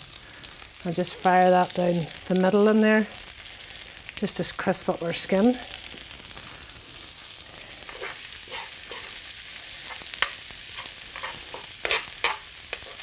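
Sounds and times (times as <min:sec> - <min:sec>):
food sizzling in a pan: 0:00.0 - 0:13.0
metal spoon scraping a pan: 0:07.7 - 0:13.0.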